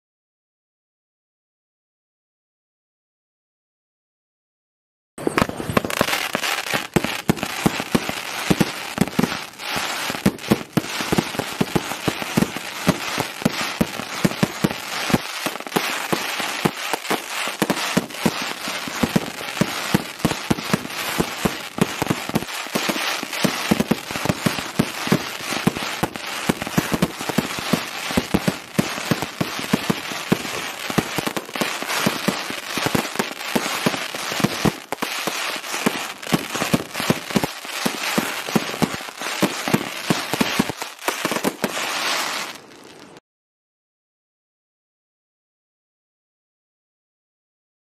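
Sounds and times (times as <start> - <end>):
fireworks launch and burst reports: 5.2 - 42.6
fireworks crackling: 5.2 - 43.2.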